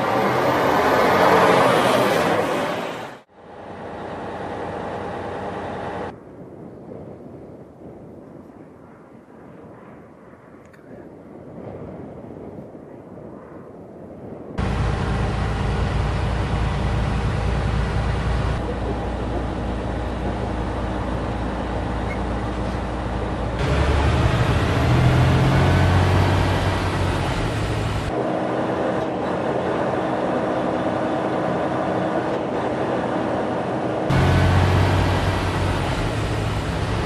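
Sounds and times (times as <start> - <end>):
road noise: 0.0 - 6.2, 14.6 - 37.0
truck diesel engine running: 14.6 - 37.0.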